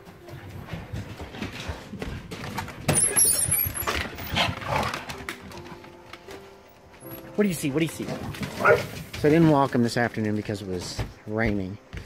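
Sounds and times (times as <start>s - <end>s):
door rattling: 2.2s - 11.0s
door squeaking: 2.8s - 4.5s
dog claws clattering on wooden floor: 8.0s - 9.5s.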